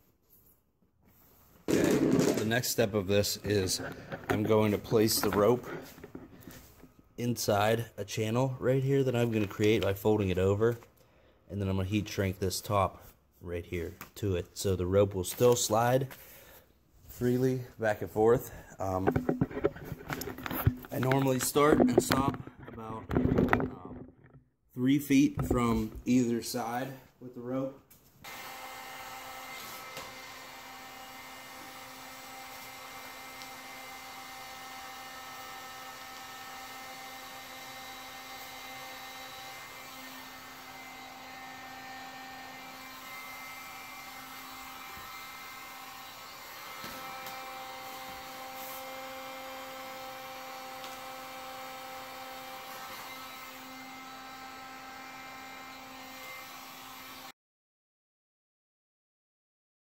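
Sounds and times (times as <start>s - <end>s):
heat gun fan whining: 1.7s - 7.7s, 18.0s - 24.4s, 28.2s - 57.3s.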